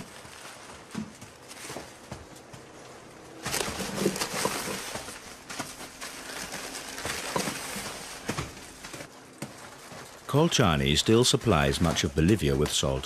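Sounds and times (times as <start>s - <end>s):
plastic bags crinkling: 0.0s - 2.1s, 3.3s - 10.4s.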